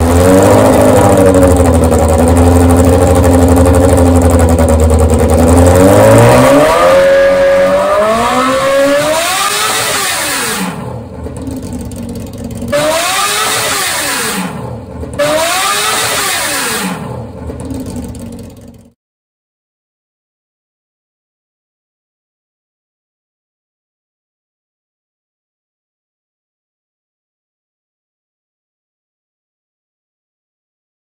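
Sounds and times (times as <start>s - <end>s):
superbike engine revving: 0.0s - 19.0s.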